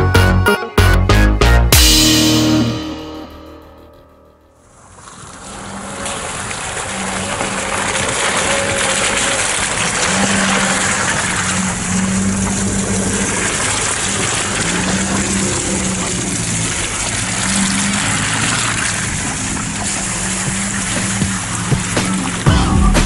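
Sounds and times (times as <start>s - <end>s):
car engine running at low speed: 9.2s - 23.0s.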